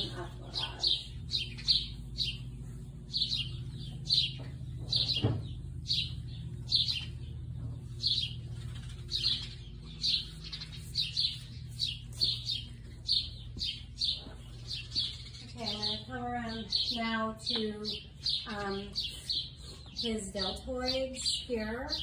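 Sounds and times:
low hum: 0:00.0 - 0:21.7
small birds chirping: 0:00.0 - 0:22.0.

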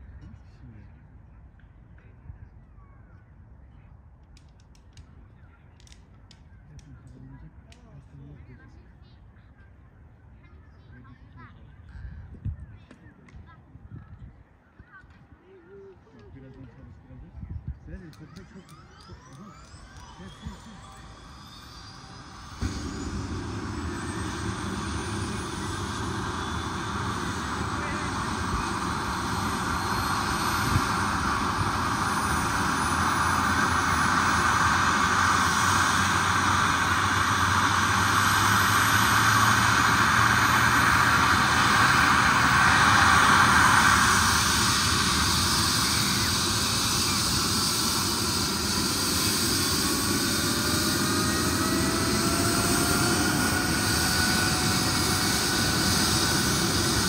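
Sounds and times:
helicopter turbine rush: 0:15.7 - 0:57.0
turbine whine rising in pitch: 0:16.8 - 0:57.0.

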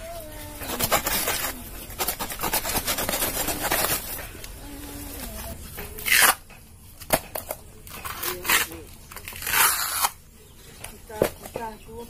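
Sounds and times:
plant sheath ripping: 0:06.0 - 0:06.4, 0:07.9 - 0:10.2
knife rasping into plant stem: 0:08.0 - 0:10.2.

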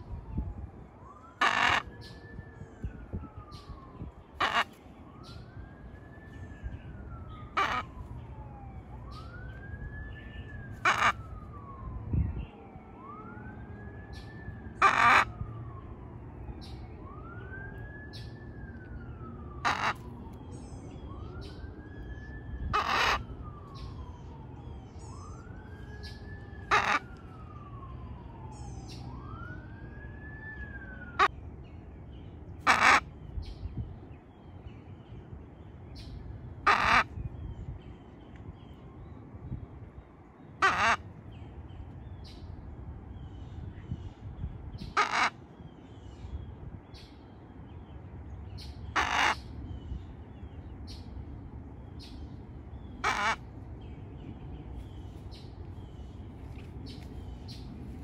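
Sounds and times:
macaw squawks: 0:01.4 - 0:02.2, 0:04.4 - 0:04.8, 0:07.5 - 0:07.9, 0:10.8 - 0:11.2, 0:14.8 - 0:15.4, 0:19.6 - 0:20.1, 0:22.7 - 0:23.3, 0:26.0 - 0:27.1, 0:32.6 - 0:33.1, 0:36.6 - 0:37.1, 0:40.6 - 0:41.0, 0:44.8 - 0:45.4, 0:48.6 - 0:49.5, 0:53.0 - 0:53.5.

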